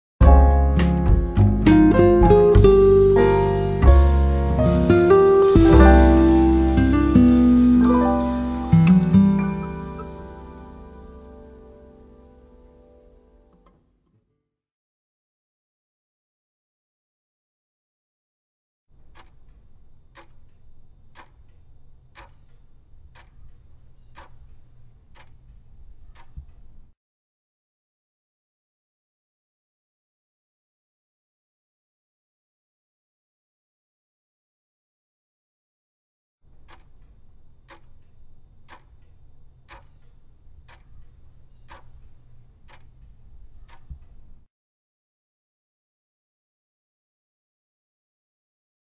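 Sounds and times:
clock ticking: 1.9 - 11.4, 18.9 - 26.9, 36.5 - 44.5.

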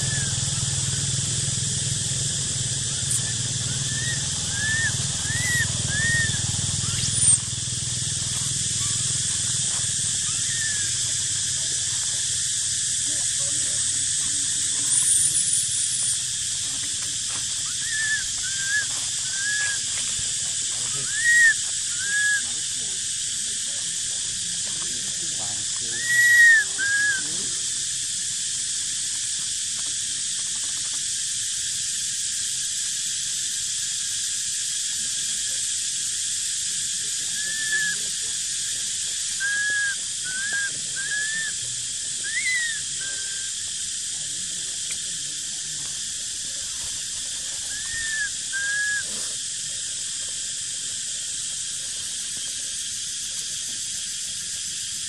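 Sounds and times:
infant monkey squeaky coos: 0.0 - 0.4, 3.0 - 7.4, 10.2 - 11.2, 17.6 - 19.9, 21.0 - 22.4, 26.0 - 27.2, 37.4 - 38.0, 39.4 - 41.6, 42.2 - 43.6, 47.7 - 49.2
steady high hiss: 0.0 - 55.0.

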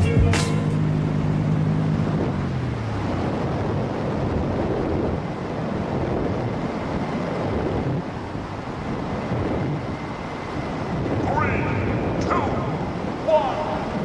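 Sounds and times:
background music: 0.0 - 1.1
wind buffeting microphone: 1.8 - 14.0.

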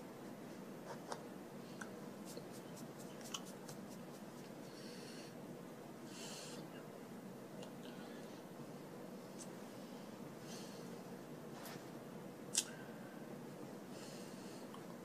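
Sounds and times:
room hiss: 0.0 - 15.0
hands and sleeves brushing: 2.2 - 4.6.

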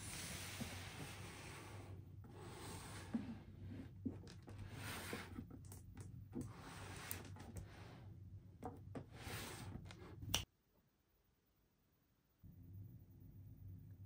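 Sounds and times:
steady low hum: 12.4 - 14.0.

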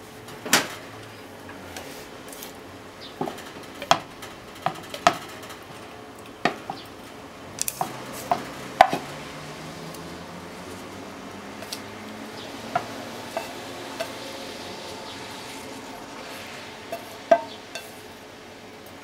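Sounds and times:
chopsticks tapping and scraping pan: 3.2 - 5.8, 7.6 - 9.2, 11.6 - 11.9, 12.6 - 14.2, 16.9 - 18.0.

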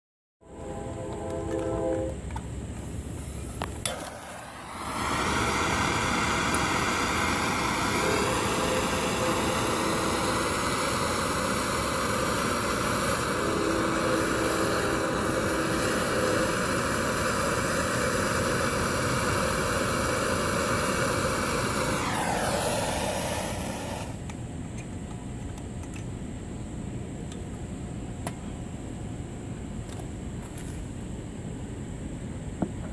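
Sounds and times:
gas torch jet hissing: 2.8 - 24.3
torch ignition click: 3.6 - 24.9.

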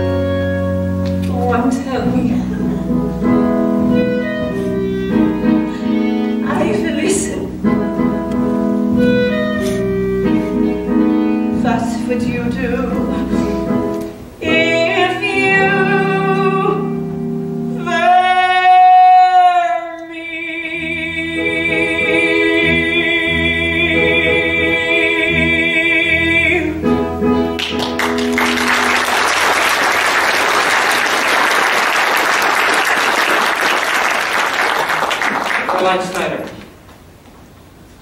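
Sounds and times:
instrumental accompaniment: 0.0 - 31.1
woman singing with vibrato: 11.5 - 13.8, 14.4 - 17.1, 17.8 - 27.0
audience applauding: 27.6 - 36.7.

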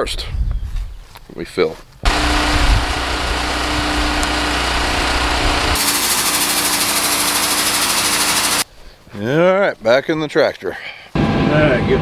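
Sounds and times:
wind on microphone: 0.0 - 1.0
small engine running: 2.0 - 8.6.

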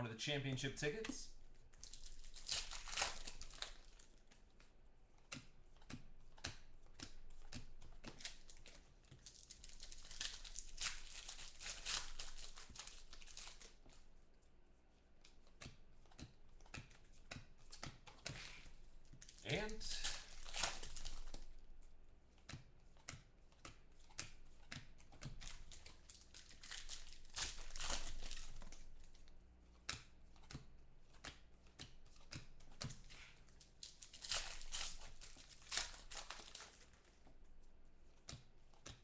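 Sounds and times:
foil wrappers crinkling and tearing: 0.8 - 4.2, 7.4 - 14.0, 18.4 - 21.7, 25.3 - 29.3, 32.9 - 37.1.

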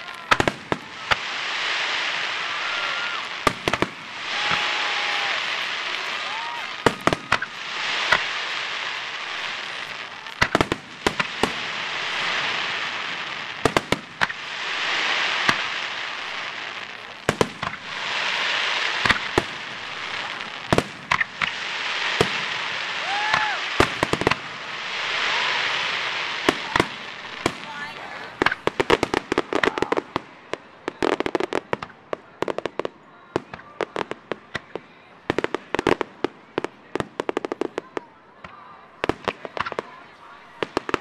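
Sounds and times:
fireworks hiss: 0.0 - 32.0
fireworks bangs: 0.0 - 41.0.

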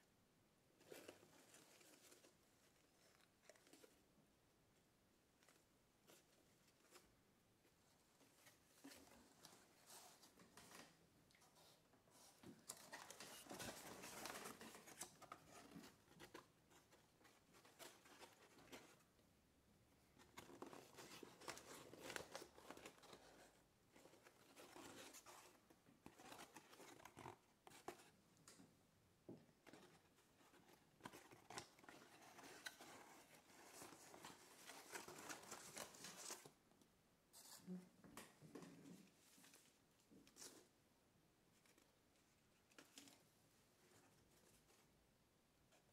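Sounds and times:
paper rustling and crinkling: 0.8 - 4.0, 8.2 - 19.1, 20.1 - 28.2, 29.5 - 36.6.

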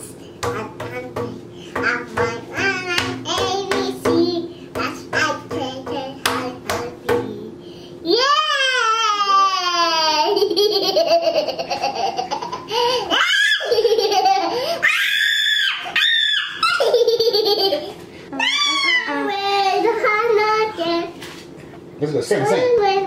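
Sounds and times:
toddler laughing: 8.8 - 19.3.

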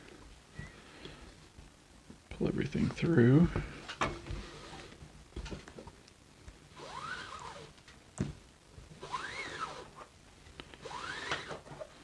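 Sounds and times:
cord zipping through wraps: 6.7 - 7.8, 9.0 - 10.1, 10.7 - 12.0.

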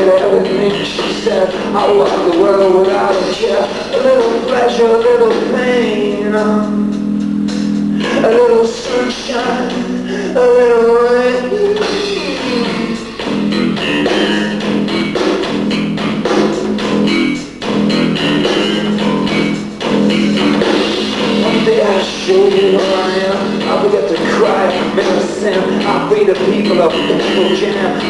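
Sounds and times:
bass guitar: 0.0 - 28.0
drums: 0.0 - 28.0
guitars: 0.0 - 28.0.

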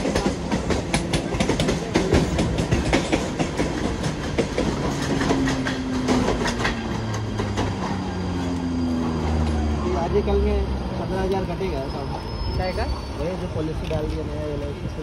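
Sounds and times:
train wheels clattering over rail joints: 0.0 - 8.6
train rumble: 0.0 - 15.0.

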